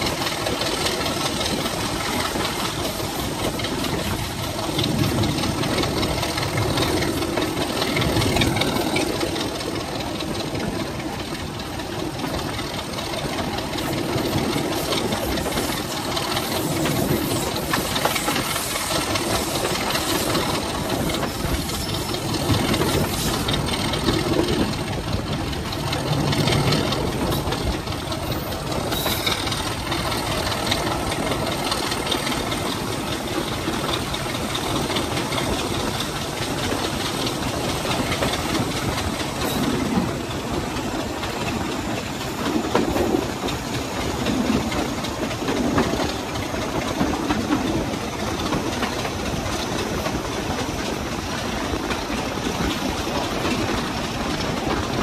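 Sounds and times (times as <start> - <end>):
diesel locomotive engine running: 0.0 - 55.0
wind and train running noise: 0.0 - 55.0.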